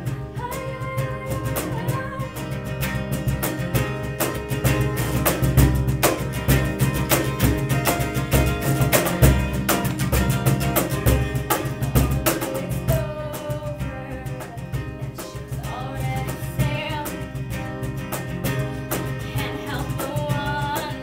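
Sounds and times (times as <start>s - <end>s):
woman singing: 0.0s - 2.8s, 12.0s - 17.6s, 18.4s - 21.0s
strummed acoustic guitar: 0.0s - 21.0s
hand strikes on box drum: 3.1s - 21.0s.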